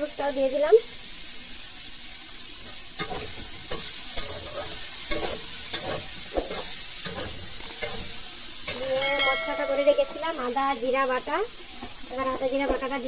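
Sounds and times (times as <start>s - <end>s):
vegetables sizzling in oil: 0.0s - 13.0s
metal spatula scraping a pan: 2.7s - 10.7s.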